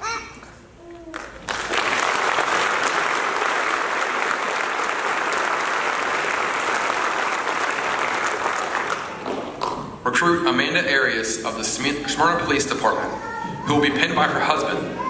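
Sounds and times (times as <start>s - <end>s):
audience applauding: 1.1s - 9.8s.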